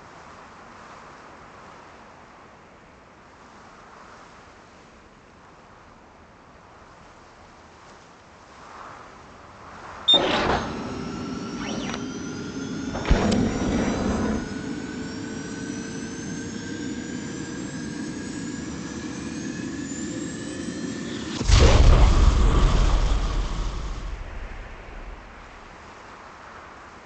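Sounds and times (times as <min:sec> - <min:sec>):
jet engine whine: 0:10.0 - 0:26.0
loud deep blast: 0:12.9 - 0:14.6, 0:21.4 - 0:25.4
short rush of noise: 0:21.3 - 0:25.8.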